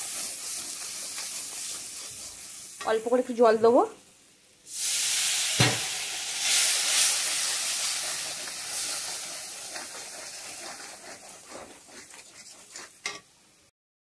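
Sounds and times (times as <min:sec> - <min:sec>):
oil hissing and sizzling: 0:00.0 - 0:13.7
spatula clanking on pan: 0:13.0 - 0:13.3.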